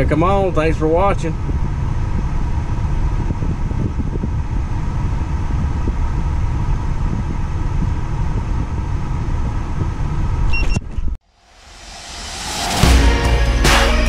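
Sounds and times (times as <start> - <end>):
car air conditioning blower: 0.4 - 10.5.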